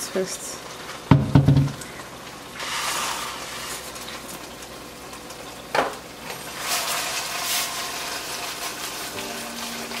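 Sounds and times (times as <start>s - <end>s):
cookware knock: 1.1s - 1.7s
sauce sizzling in a frying pan: 1.8s - 10.0s.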